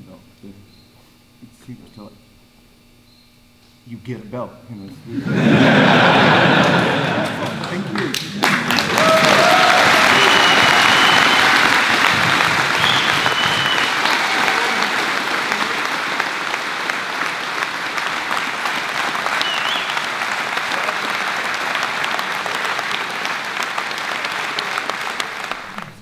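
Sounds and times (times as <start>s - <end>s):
crowd applauding: 5.3s - 26.0s.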